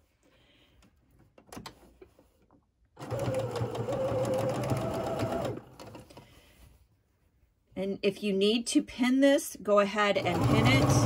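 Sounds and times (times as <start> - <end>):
sewing machine whirring: 3.0 - 6.2, 10.2 - 11.0.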